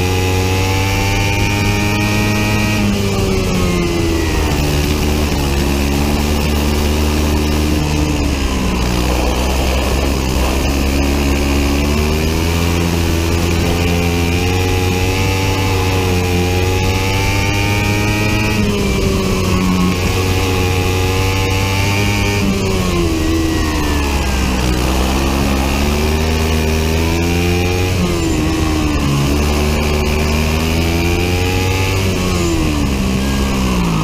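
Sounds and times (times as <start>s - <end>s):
kart engine revving: 0.0s - 34.0s
steady low rumble: 2.8s - 20.9s.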